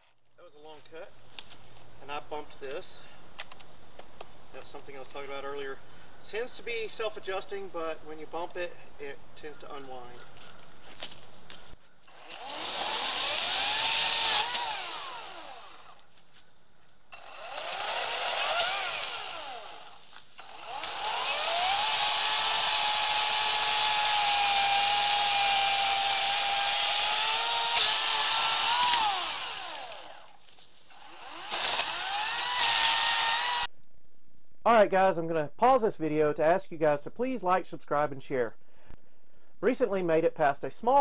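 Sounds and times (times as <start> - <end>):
electric chainsaw whining: 12.0 - 16.1, 17.1 - 33.7
chainsaw cutting tree trunk: 12.1 - 16.1, 17.2 - 33.7.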